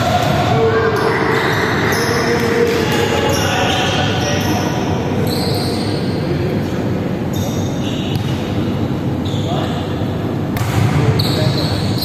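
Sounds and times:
faint voices of players: 0.0 - 8.2
echoing sports hall din: 0.0 - 12.0.

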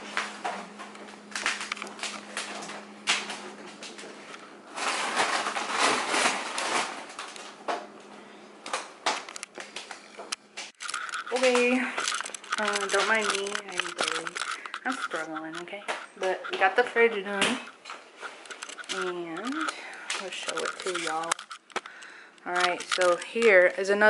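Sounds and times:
plastic packaging crinkling: 0.1 - 7.7, 8.6 - 24.0.

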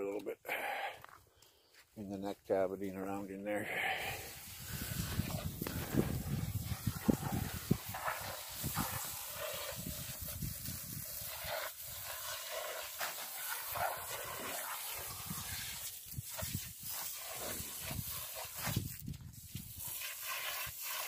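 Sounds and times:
hose spraying water onto meat: 3.8 - 21.0.

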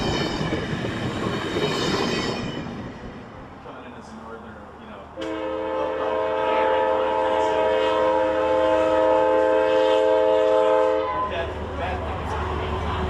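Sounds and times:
locomotive air horn: 5.2 - 11.3.

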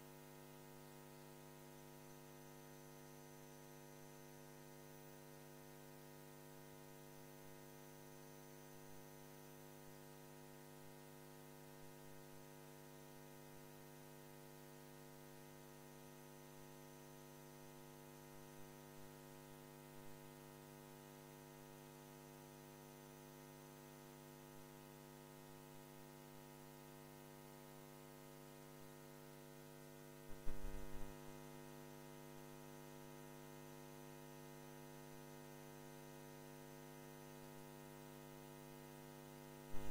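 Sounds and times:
electrical mains hum: 30.2 - 31.4, 39.6 - 39.9.

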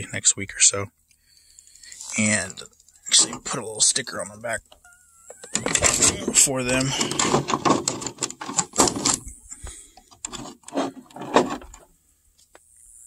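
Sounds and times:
plastic shell handling clicks and rustles: 4.7 - 9.3, 9.9 - 12.6.

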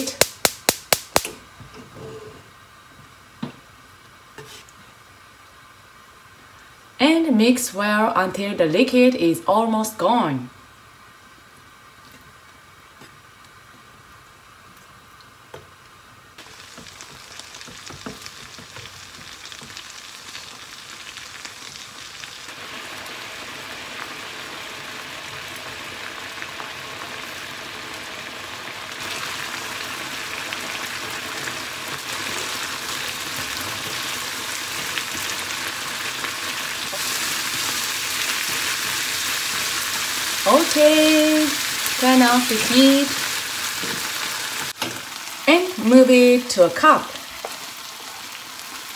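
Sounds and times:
fish sizzling in a frying pan: 16.4 - 48.9.

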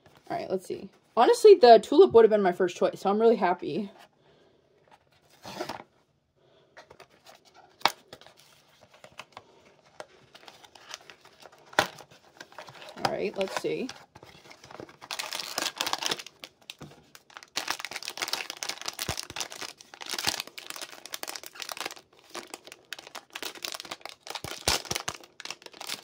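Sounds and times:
cardboard rustling: 4.8 - 5.9, 6.8 - 26.0
foil pouch crinkling and tearing: 10.0 - 26.0.

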